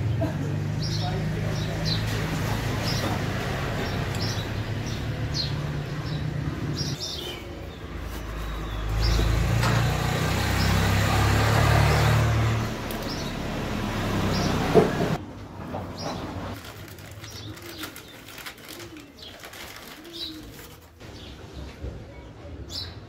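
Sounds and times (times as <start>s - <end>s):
vehicle engine humming: 0.0s - 17.9s
small birds chirping: 0.7s - 9.6s, 12.8s - 14.8s, 15.9s - 21.4s.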